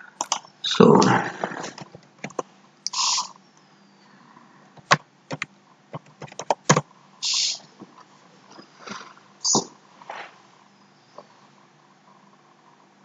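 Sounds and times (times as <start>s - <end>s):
keyboard keystrokes: 1.9s - 2.4s, 4.8s - 6.8s
short breathy hisses: 2.9s - 3.4s, 7.2s - 7.6s.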